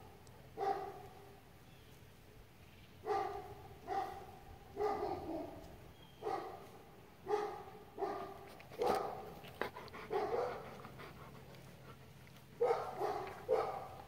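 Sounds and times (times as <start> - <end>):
dog barking: 0.6 - 1.2, 3.0 - 5.6, 6.2 - 9.4, 10.1 - 10.7, 12.6 - 14.0.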